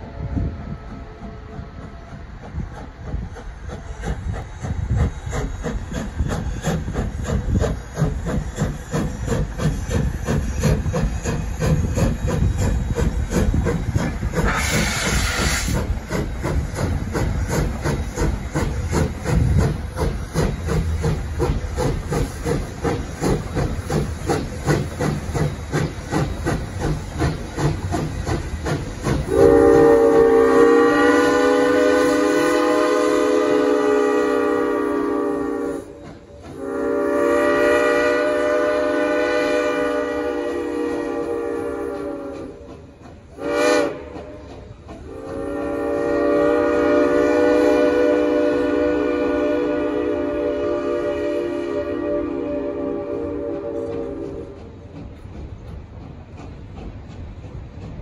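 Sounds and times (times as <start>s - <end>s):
steam locomotive chuffing: 0.0s - 58.0s
steam hiss: 0.6s - 58.0s
chime steam whistle: 29.3s - 42.6s, 45.1s - 54.6s.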